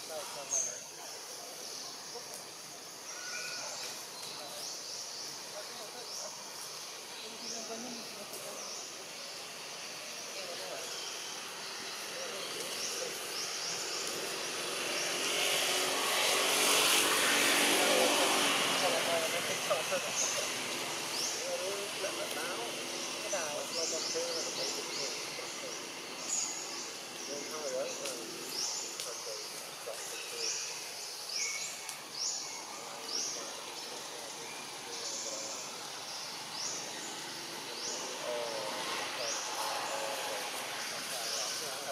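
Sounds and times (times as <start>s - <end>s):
faint insect chirps: 0.0s - 17.0s
motor vehicle: 0.0s - 41.9s
steady background hiss: 0.0s - 41.9s
rising insect buzzing call: 0.1s - 41.9s.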